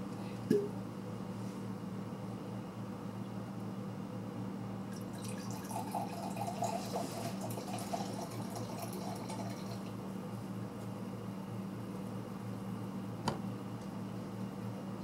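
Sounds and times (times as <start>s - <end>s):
steady low hum: 0.0s - 15.0s
wine gurgling into a glass: 5.0s - 9.9s.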